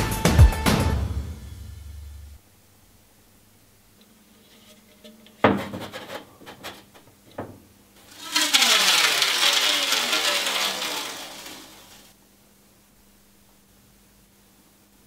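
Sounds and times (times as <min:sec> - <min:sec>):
paint can scraping: 0:04.0 - 0:12.1.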